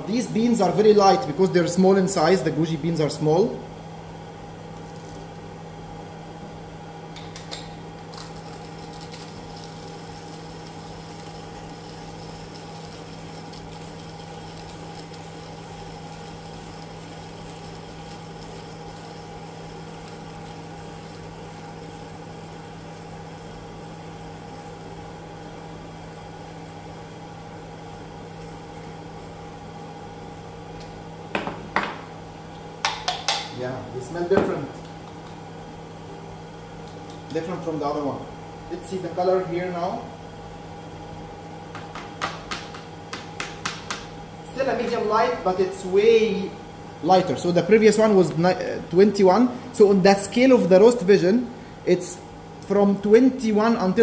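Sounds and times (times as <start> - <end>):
cooling fan humming: 0.0 - 54.0
hand coffee grinder grinding: 8.1 - 21.7.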